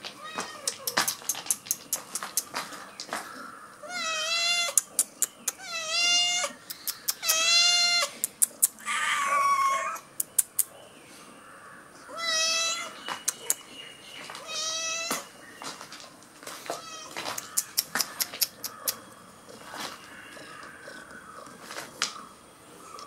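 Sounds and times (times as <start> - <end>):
cats meowing: 0.0 - 1.3, 3.7 - 10.1, 12.1 - 13.6, 14.3 - 15.3, 16.6 - 22.1.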